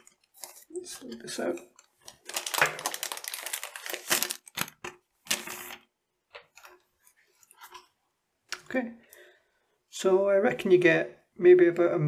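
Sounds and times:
plastic packaging crinkling: 0:01.8 - 0:05.8.

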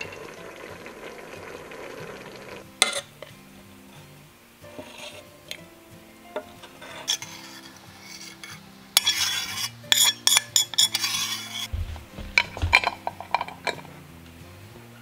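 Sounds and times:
soft background music: 0:00.0 - 0:15.0
preserve scraped from pot: 0:06.8 - 0:11.7
pot clinking against jar rim: 0:09.0 - 0:11.7.

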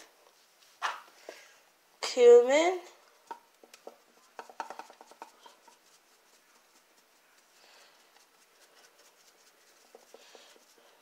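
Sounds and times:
spice shaker rattling: 0:03.2 - 0:10.9.

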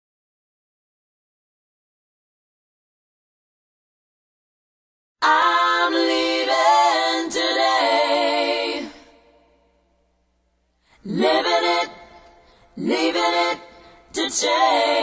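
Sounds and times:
voices singing a cappella: 0:05.2 - 0:10.0, 0:10.9 - 0:15.0.

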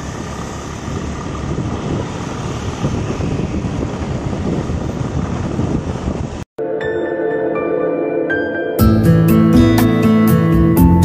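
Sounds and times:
wind buffeting microphone: 0:00.0 - 0:06.5.

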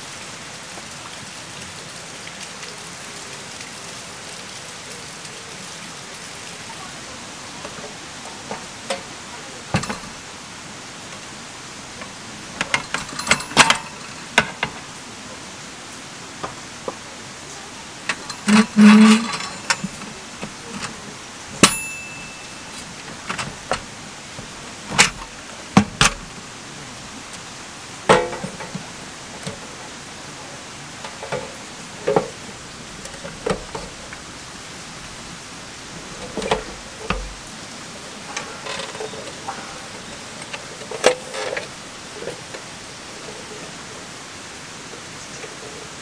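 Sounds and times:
steady hiss: 0:00.0 - 0:46.0
metal stove parts clacking shut: 0:21.6 - 0:22.3, 0:28.1 - 0:28.8
brief ringing ding: 0:21.6 - 0:22.8.

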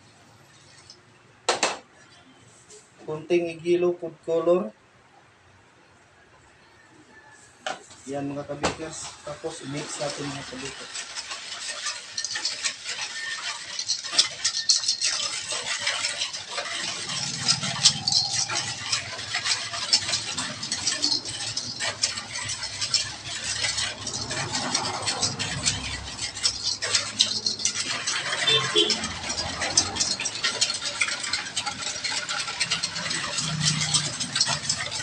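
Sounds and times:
utensil scraping metal bowl: 0:08.1 - 0:35.0.

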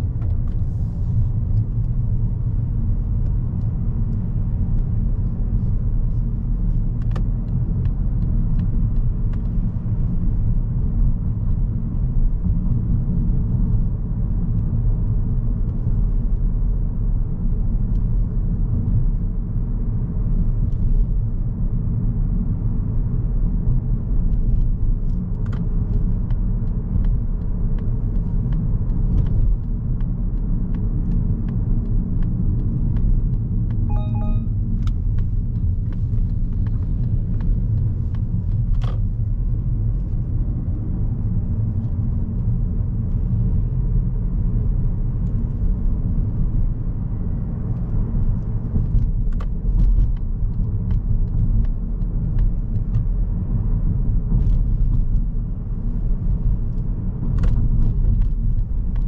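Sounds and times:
car driving interior rumble: 0:00.0 - 0:59.0
tyre and road noise: 0:00.0 - 0:59.0
short beep: 0:33.9 - 0:34.6.

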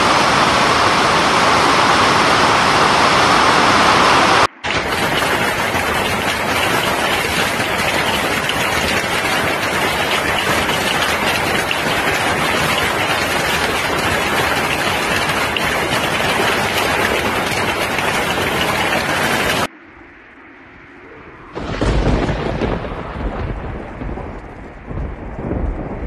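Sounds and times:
hail pelting water and lawn: 0:04.5 - 0:19.7.

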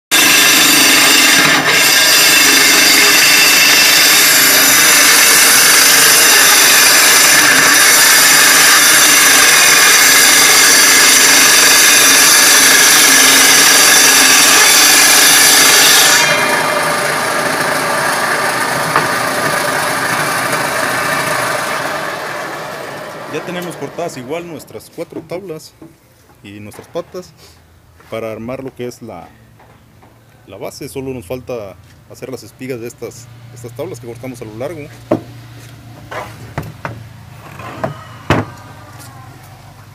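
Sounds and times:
table saw cutting wood: 0:00.1 - 0:24.8, 0:33.6 - 0:38.7.

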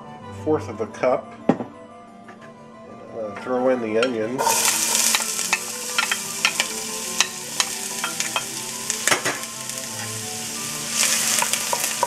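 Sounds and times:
onions sizzling in hot oil: 0:04.4 - 0:12.0.

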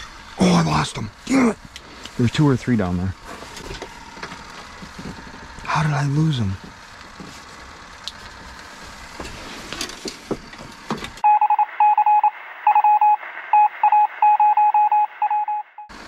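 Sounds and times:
rapid electronic beeping: 0:11.2 - 0:15.9.

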